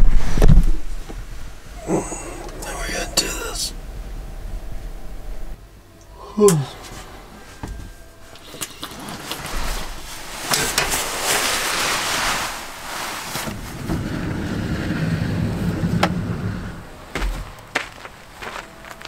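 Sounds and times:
rustling: 6.7s - 16.8s.

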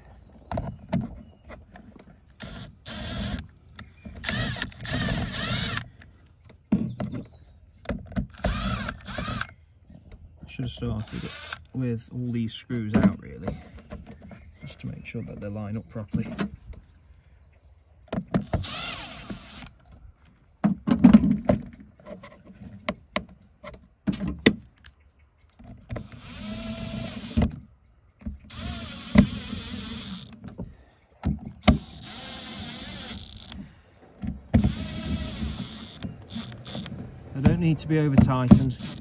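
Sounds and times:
cordless drill driving screws: 2.4s - 3.5s, 4.2s - 5.9s, 8.2s - 9.5s, 11.0s - 11.7s, 18.4s - 19.8s, 25.9s - 27.5s, 28.5s - 30.4s, 31.6s - 33.7s, 34.6s - 37.8s, 38.5s - 39.0s.

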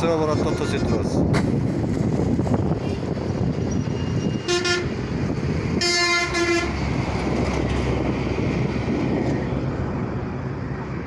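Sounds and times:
road traffic noise: 0.0s - 11.0s
vehicle horn honking: 4.4s - 5.0s, 5.8s - 6.8s.

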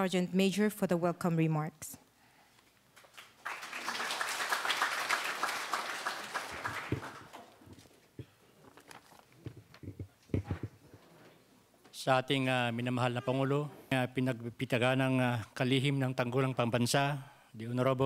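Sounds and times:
audience applauding: 3.0s - 7.7s.

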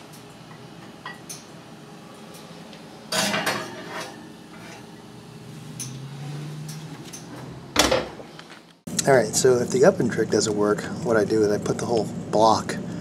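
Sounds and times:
glass dish clinking on metal rack: 1.0s - 1.4s, 3.1s - 3.8s.

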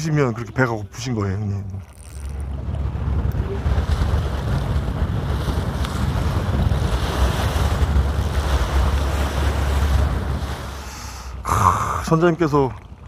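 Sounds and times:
wind buffeting microphone: 0.0s - 13.0s
hiss of sea wash: 5.5s - 12.1s.

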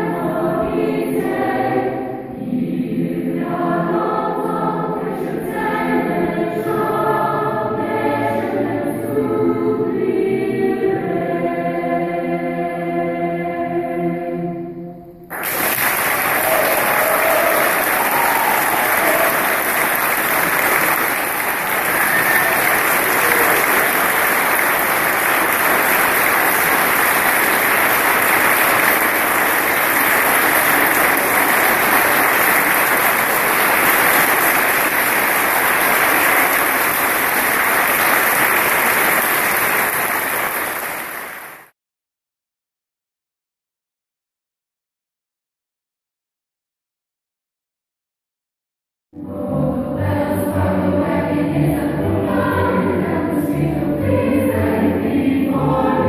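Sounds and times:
children's choir singing: 0.0s - 41.6s, 49.2s - 56.0s
audience applauding: 15.3s - 41.7s.

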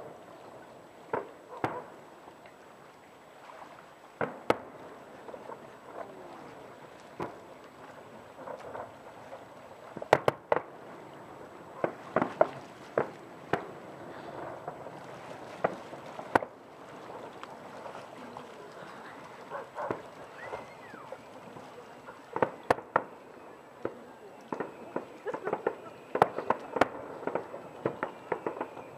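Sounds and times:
distant firework bangs: 1.1s - 2.0s, 4.2s - 7.4s, 9.9s - 11.0s, 11.7s - 17.9s, 19.4s - 28.9s.

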